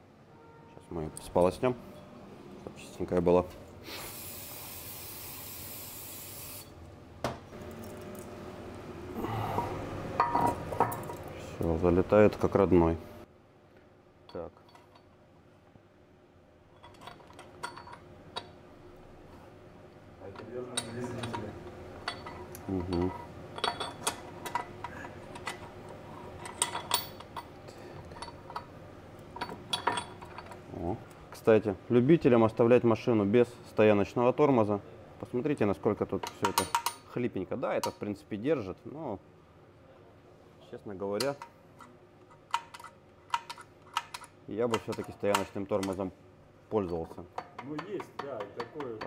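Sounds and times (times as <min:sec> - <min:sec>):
air blow gun hissing: 0:03.8 - 0:06.7
metal parts clicking and clinking: 0:10.2 - 0:11.4, 0:14.3 - 0:15.2, 0:16.8 - 0:18.6, 0:20.3 - 0:28.7, 0:29.3 - 0:30.6, 0:36.1 - 0:37.1, 0:41.2 - 0:46.1.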